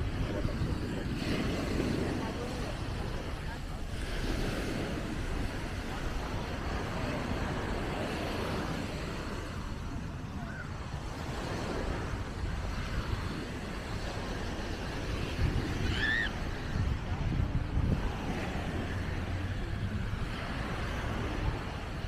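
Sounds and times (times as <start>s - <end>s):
surf washing: 0.0s - 22.0s
wind buffeting microphone: 0.0s - 22.0s.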